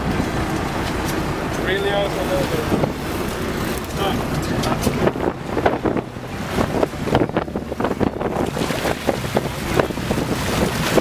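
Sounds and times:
sea water splashing: 0.0s - 11.0s
wind buffeting microphone: 0.0s - 11.0s.

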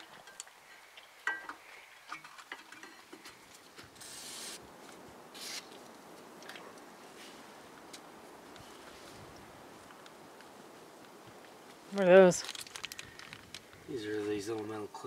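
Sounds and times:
aerosol spray can hissing: 4.0s - 4.6s, 5.4s - 5.7s
metal parts clicking and clinking: 12.4s - 13.6s.

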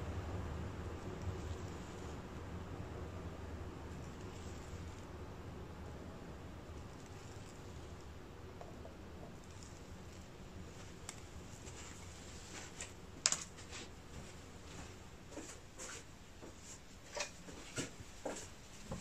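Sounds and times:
faint room hum: 0.0s - 19.0s.

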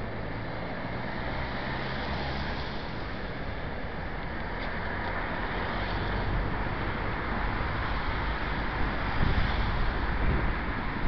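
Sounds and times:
steady rushing noise: 1.4s - 11.0s
wind buffeting microphone: 8.2s - 11.0s.

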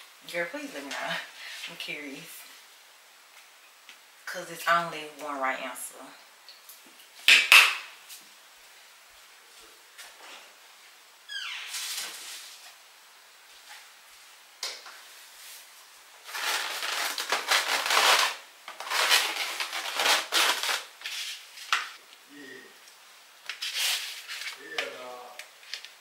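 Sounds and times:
styrofoam boxes rubbing and scraping: 15.2s - 21.7s, 23.6s - 24.6s.

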